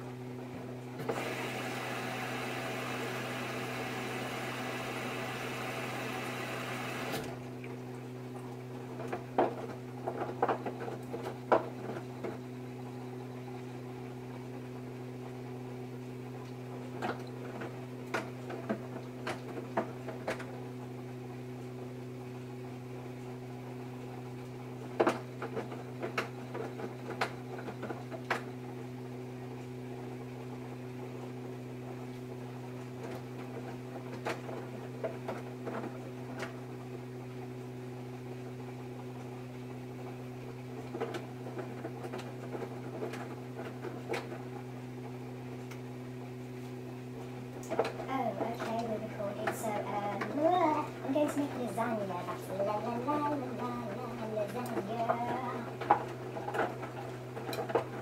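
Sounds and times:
washing machine drum turning: 1.0 - 7.4
steady low hum: 35.6 - 58.0.

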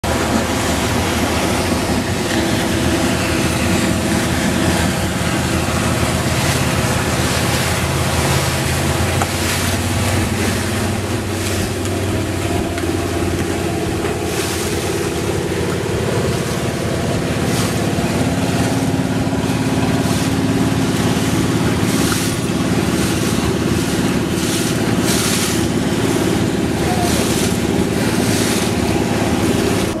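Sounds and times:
motorboat engine running: 0.0 - 30.0
rushing water: 0.0 - 30.0.

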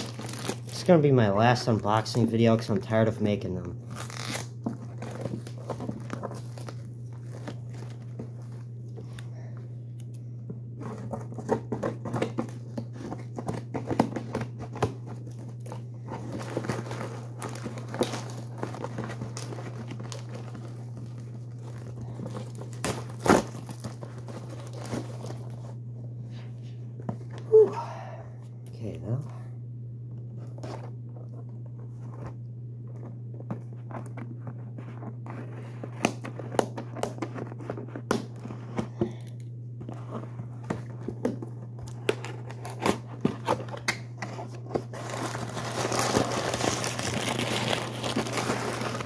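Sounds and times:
plastic wrapping crinkling: 0.0 - 10.1, 10.7 - 25.8, 39.9 - 49.0
steady low hum: 0.0 - 49.0.

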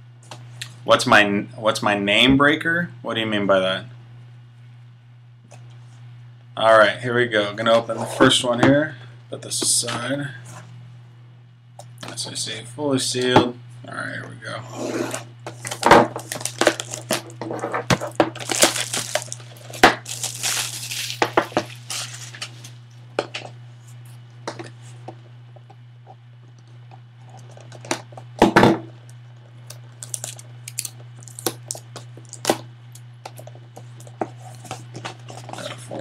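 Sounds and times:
low hum: 4.1 - 36.0
cardboard handling clicks and rustles: 15.5 - 22.8
shrink wrap tearing and crinkling: 15.5 - 22.8, 29.7 - 35.8.

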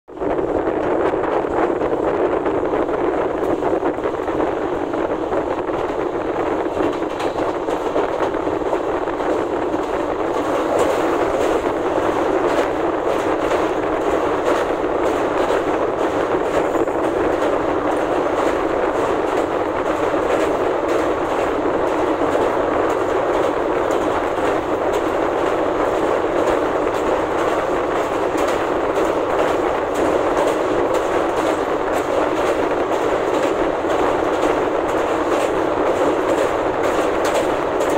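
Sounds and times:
clickety-clack of wheels: 0.1 - 37.9
train wheels rumbling on rail: 0.1 - 37.9.

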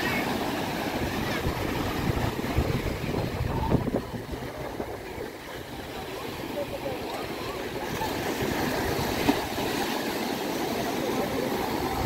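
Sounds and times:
waves breaking on beach: 0.0 - 12.0
wind buffeting microphone: 0.8 - 6.8.

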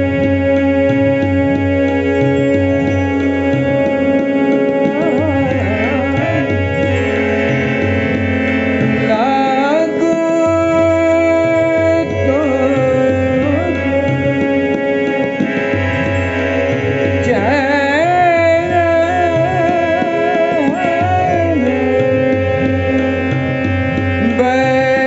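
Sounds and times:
rhythmic percussion: 0.0 - 25.0
steady drone: 1.6 - 20.0
man singing: 3.4 - 7.5, 8.8 - 15.5, 17.1 - 25.0.

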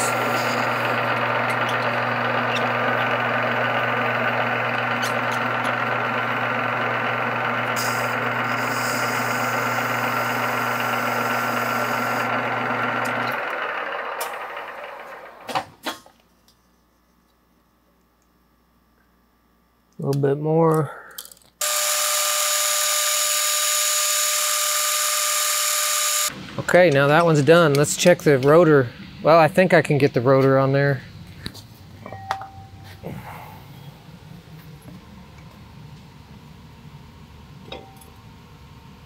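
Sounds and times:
rough metal cutting noise: 0.0 - 13.6, 21.6 - 26.4
lathe motor hum: 0.0 - 15.6, 21.6 - 27.4.

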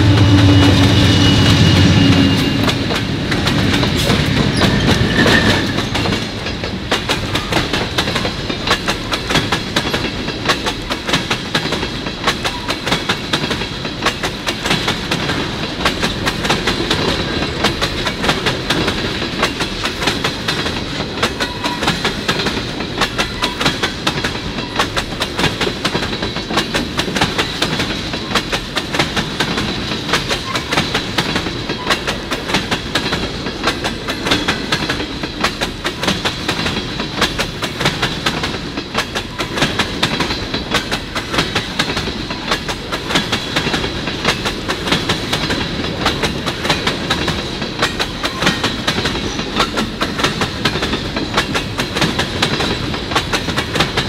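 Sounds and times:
thin high whine: 0.0 - 2.8
train wheels clicking over rail joints: 0.0 - 54.0.

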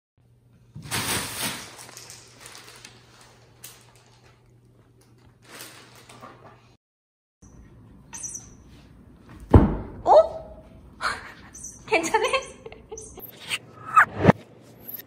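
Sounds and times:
plastic bag crinkling: 0.9 - 4.5, 5.2 - 6.2.

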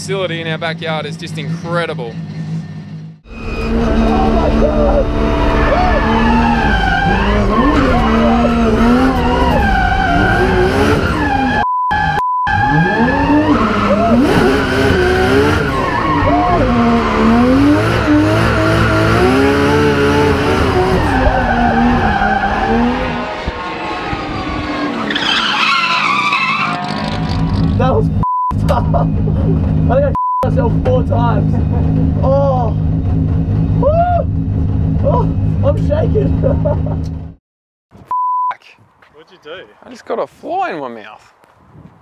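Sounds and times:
car engine revving: 0.2 - 37.3
tyres squealing: 3.3 - 11.6, 20.7 - 27.7.

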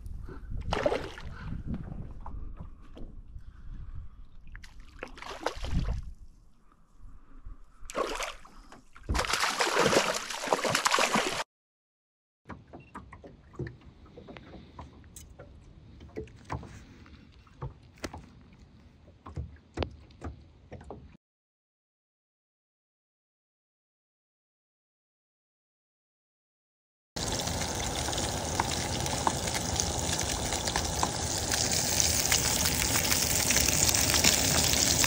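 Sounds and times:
sharp knocks and taps in boat: 12.5 - 18.4, 19.0 - 21.2.

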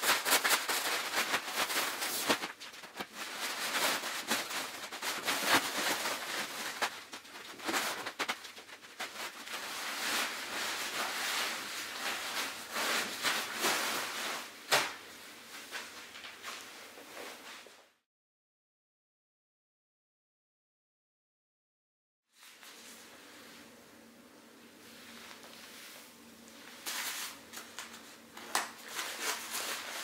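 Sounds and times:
crinkly fabric rustling: 0.0 - 17.8, 24.8 - 30.0.

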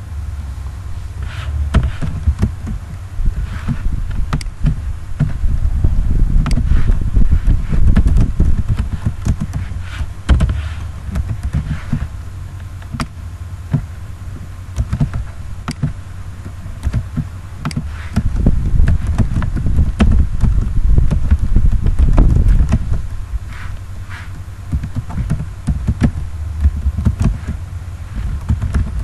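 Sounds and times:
loud low rumble: 0.0 - 17.6.

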